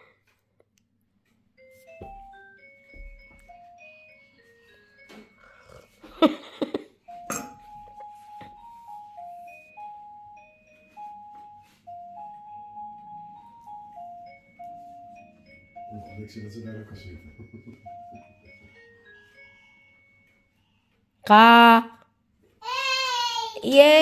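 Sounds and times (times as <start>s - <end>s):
toy beeping tune: 7.1s - 20.4s.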